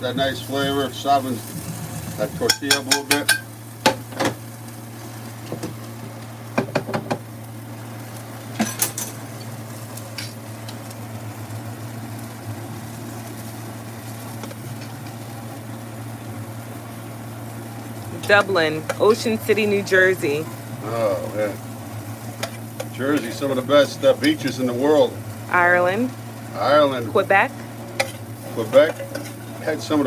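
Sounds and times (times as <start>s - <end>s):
steady hum: 0.0s - 30.0s
tortillas sizzling on a griddle: 0.0s - 30.0s
knock: 6.6s - 7.2s.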